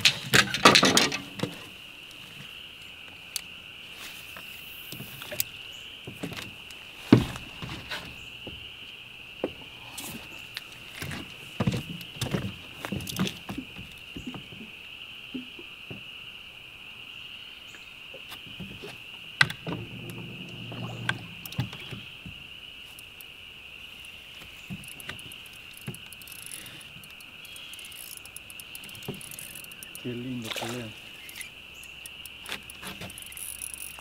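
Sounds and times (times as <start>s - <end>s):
insect chorus: 0.0s - 34.0s
knocks and clicks: 19.4s - 22.4s
low thumps: 19.4s - 22.9s.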